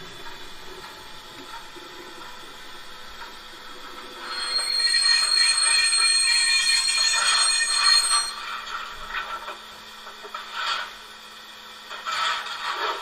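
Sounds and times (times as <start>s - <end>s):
locomotive bell ringing: 4.2s - 8.8s.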